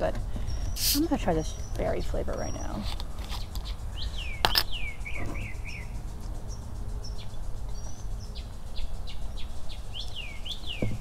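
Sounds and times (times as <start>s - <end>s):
low traffic rumble: 0.0s - 11.0s
small birds chirping: 0.0s - 11.0s
bottle cap click: 4.4s - 4.7s.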